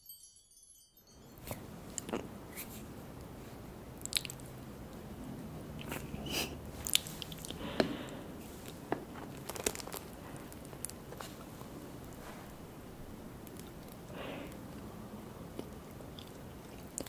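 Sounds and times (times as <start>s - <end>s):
chewing and lip-smacking: 4.0s - 4.5s, 5.8s - 6.2s, 6.8s - 7.6s, 15.5s - 17.0s.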